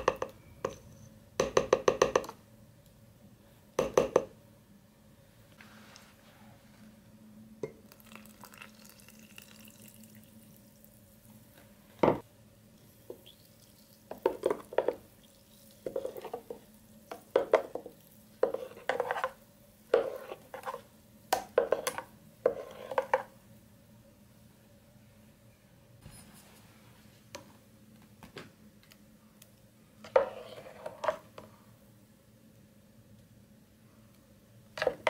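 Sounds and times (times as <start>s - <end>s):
metal spoon scraping and sloshing: 30.0s - 31.3s.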